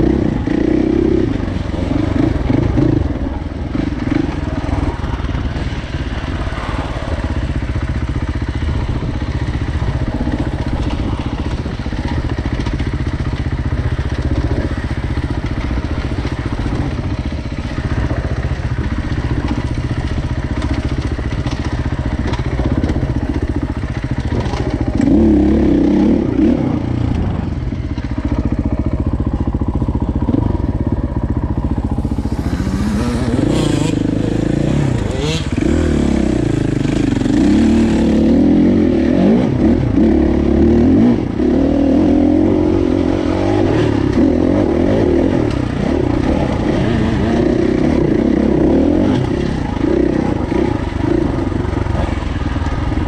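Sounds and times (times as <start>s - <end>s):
dirt bike engine revving: 8.7s - 53.0s.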